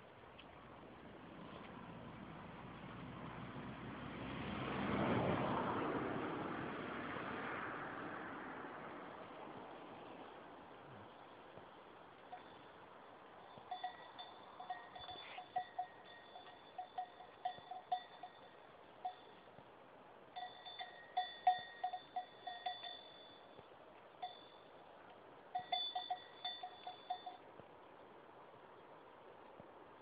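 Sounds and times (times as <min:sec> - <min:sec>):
goat bell clanking: 0:12.2 - 0:12.8, 0:13.4 - 0:19.6, 0:20.4 - 0:23.6, 0:24.2 - 0:24.8, 0:25.5 - 0:27.5.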